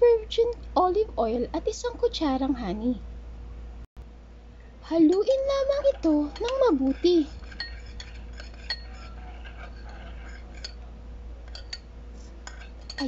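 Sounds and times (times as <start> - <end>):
spoon clinking against glass bowl: 6.3 - 9.2, 9.8 - 10.8, 11.5 - 13.0.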